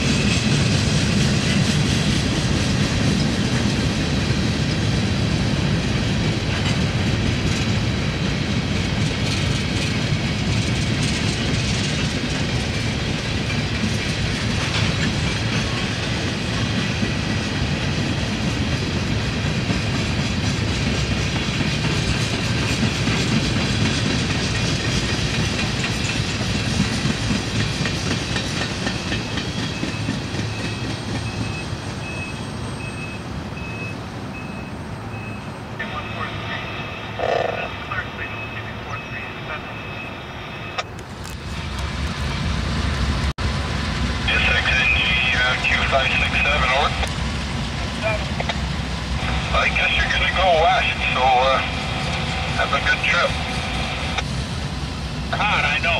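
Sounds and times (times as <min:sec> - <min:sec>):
train wheels clacking over rail joints: 0:00.0 - 0:05.1, 0:05.9 - 0:31.7
backup alarm beeping: 0:29.7 - 0:40.9.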